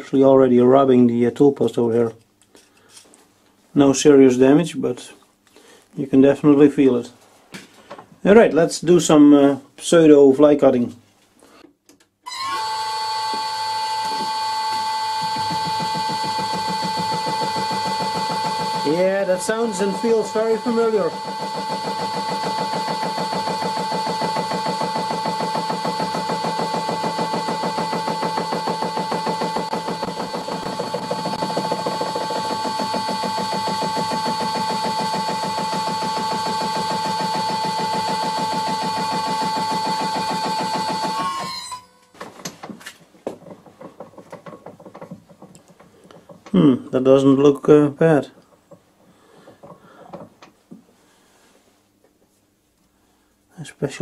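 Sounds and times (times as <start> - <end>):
lathe gear whine: 12.3 - 41.9.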